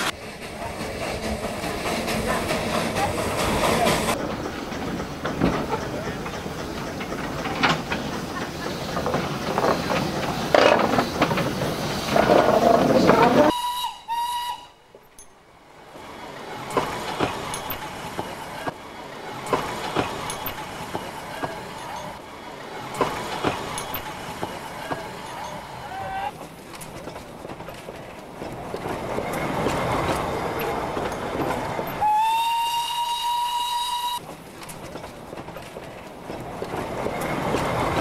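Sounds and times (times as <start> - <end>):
steam locomotive hissing: 0.0 - 38.0
locomotive clanks and knocks: 0.8 - 13.5, 16.4 - 32.0, 34.2 - 38.0
steam whistle toots: 13.4 - 14.8, 32.0 - 34.2.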